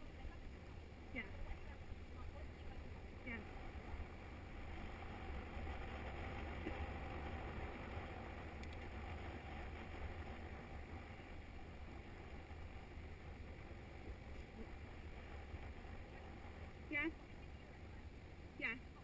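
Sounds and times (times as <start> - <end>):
tyres rolling on tarmac: 0.0 - 19.0
wind buffeting microphone: 0.0 - 19.0.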